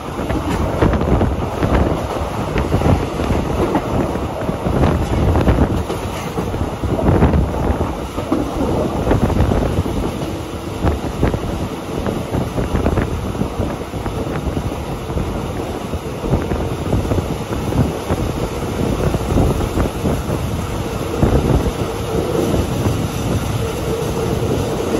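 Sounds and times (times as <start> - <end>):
train running noise: 0.0 - 24.9
wind buffeting microphone: 0.0 - 24.9.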